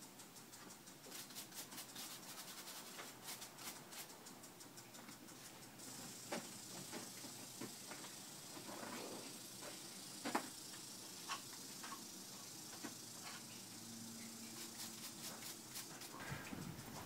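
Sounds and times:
low hiss: 0.0s - 17.0s.

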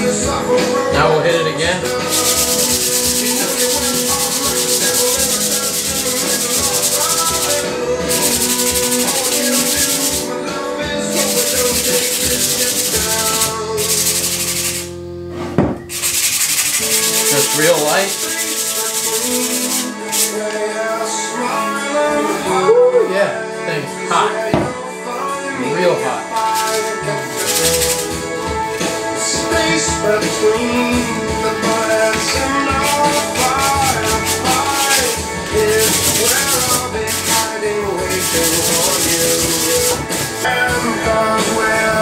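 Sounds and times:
background music: 0.0s - 42.0s
sandpaper rubbing on wood: 2.1s - 10.3s, 11.1s - 15.0s, 15.9s - 20.4s, 26.5s - 28.2s, 31.7s - 40.6s.

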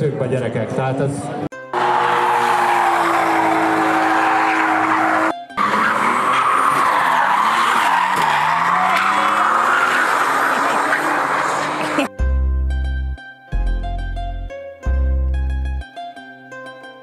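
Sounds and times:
tyres squealing: 1.8s - 12.0s
car engine at high revs: 1.8s - 12.1s.

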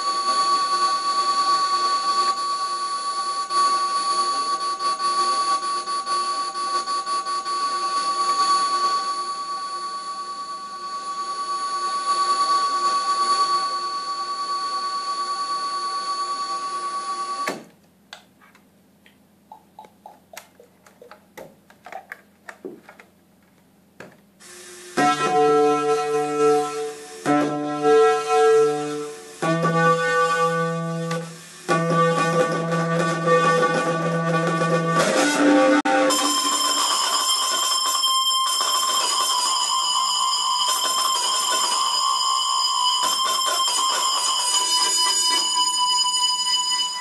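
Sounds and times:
electronic whine over hiss: 0.0s - 17.7s, 24.4s - 47.0s
cable crackles and clicks: 18.1s - 24.2s
clicks and short blips: 19.5s - 21.2s.

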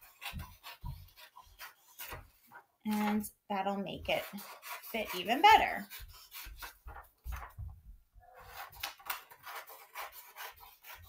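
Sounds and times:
paper rustling: 5.9s - 7.8s.

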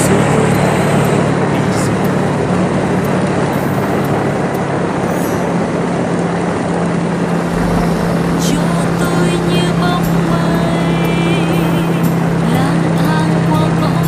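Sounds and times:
wind and road noise: 0.0s - 12.5s
motorbike engine hum: 0.0s - 14.0s
deeper engine rumble: 6.5s - 13.9s.

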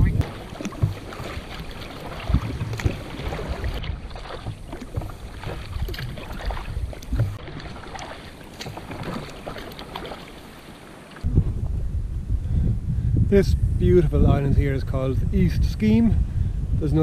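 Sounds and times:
wind buffeting microphone: 0.0s - 10.6s, 11.2s - 17.0s
water splashing against kayak hull: 0.0s - 11.8s.

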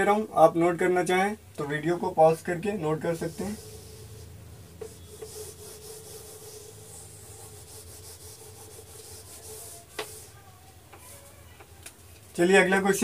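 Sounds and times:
eraser scrubbing a whiteboard: 2.9s - 10.4s.

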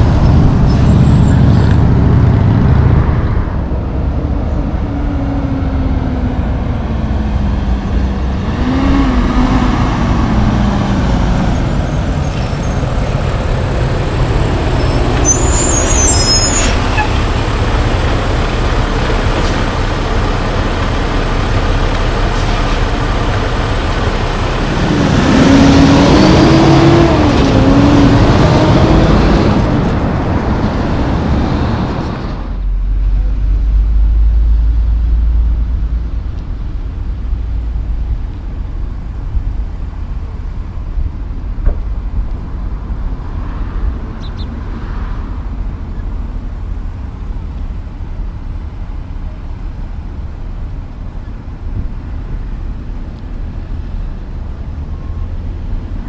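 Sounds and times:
diesel trucks driving past: 0.0s - 56.0s
brief high squeal: 14.8s - 17.2s.

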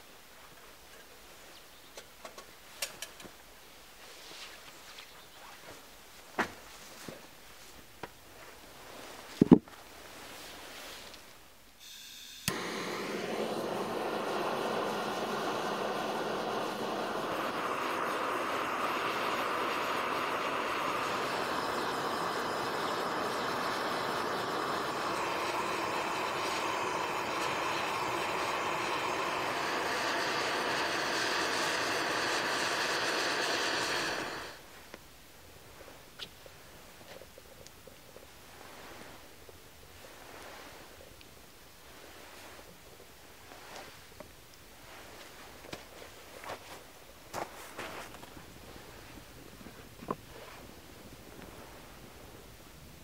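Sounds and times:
gas hissing: 11.8s - 34.7s
gas torch flame running: 11.8s - 34.7s.

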